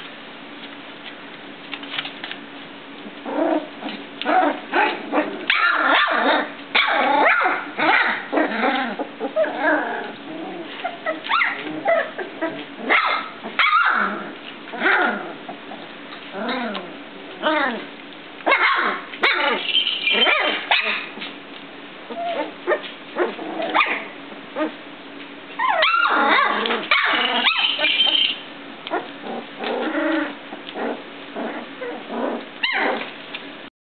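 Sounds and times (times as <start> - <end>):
puppies whining and yipping: 4.3 - 14.2, 18.5 - 21.2, 22.1 - 24.8, 25.5 - 33.1.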